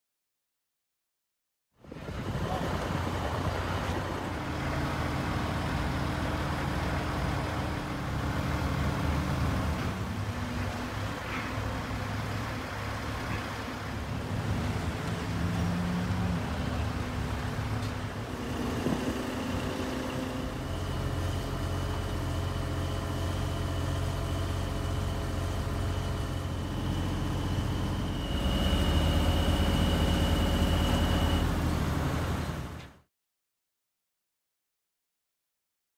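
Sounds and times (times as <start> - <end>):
heavy machinery engine running: 1.9 - 33.0
high steady whine: 16.4 - 32.5.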